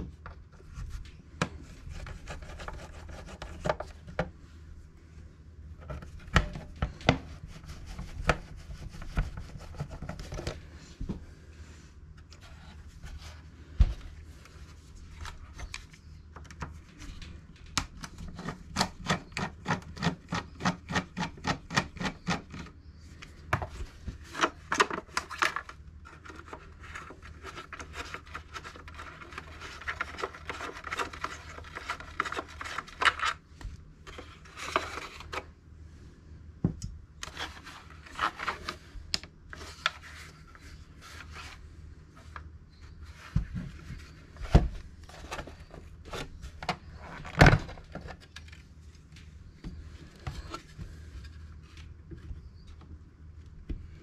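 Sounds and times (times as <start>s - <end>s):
rubbing of plastic: 0.6s - 4.3s, 5.8s - 10.8s, 23.8s - 35.5s.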